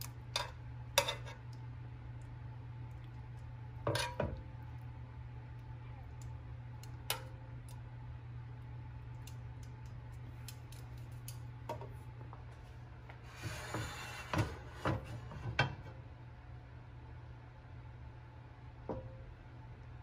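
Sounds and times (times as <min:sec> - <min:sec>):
steady low hum: 0:00.0 - 0:20.0
metal tongs clicking over pan: 0:09.2 - 0:11.4.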